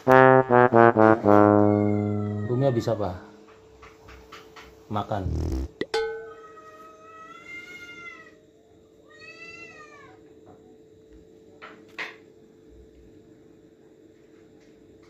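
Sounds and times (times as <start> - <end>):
faint steady hum: 0.0 - 15.0
kitten meowing: 9.1 - 10.2.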